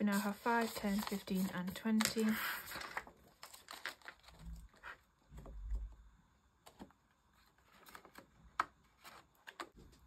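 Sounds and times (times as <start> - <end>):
paper rustling: 0.0 - 5.0, 6.7 - 10.0.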